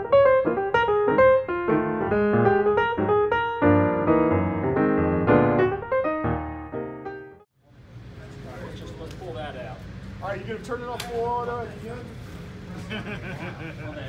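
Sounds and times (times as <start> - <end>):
piano music: 0.0 - 7.5.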